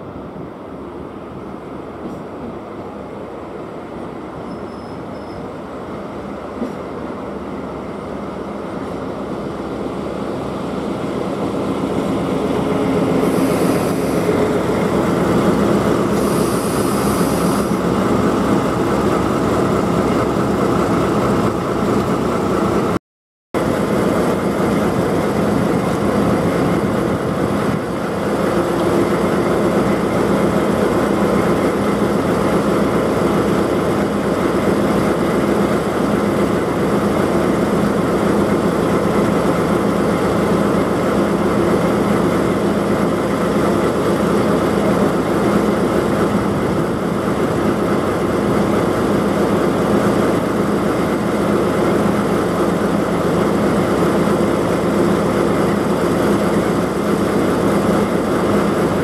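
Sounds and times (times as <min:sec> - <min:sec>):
diesel locomotive engine running: 0:00.0 - 0:23.0, 0:23.6 - 0:59.0
high squeals from train running gear: 0:04.4 - 0:05.6, 0:13.1 - 0:14.4, 0:16.0 - 0:17.9.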